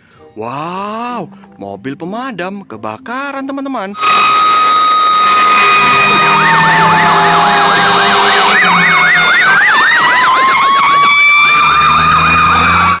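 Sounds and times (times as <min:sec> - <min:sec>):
fire engine siren wail: 0:04.0 - 0:13.0
fire engine siren yelp: 0:04.0 - 0:13.0.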